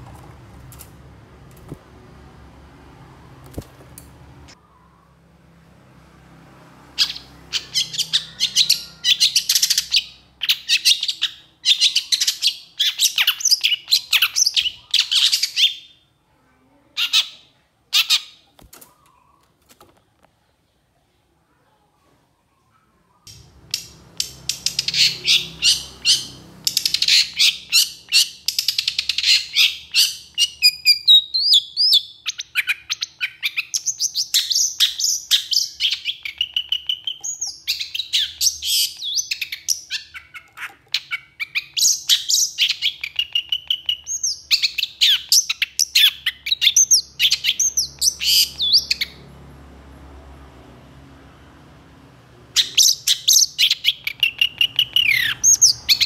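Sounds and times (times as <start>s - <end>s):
bird chattering and calling: 7.0s - 15.9s, 23.3s - 49.2s, 52.6s - 56.0s.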